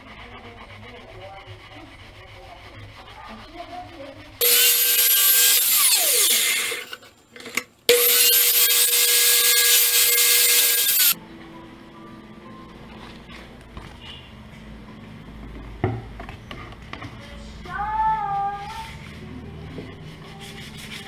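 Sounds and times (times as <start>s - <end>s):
saw blade winding down whine: 4.4s - 6.9s, 7.9s - 11.2s
miter saw cutting plastic pipe: 4.4s - 7.0s, 7.9s - 11.2s.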